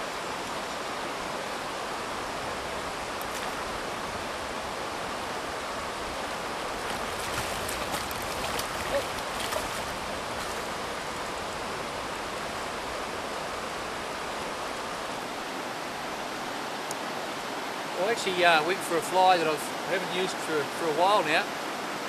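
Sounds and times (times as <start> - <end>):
river rushing over stones: 0.0 - 22.0
fish splashing: 6.8 - 10.8.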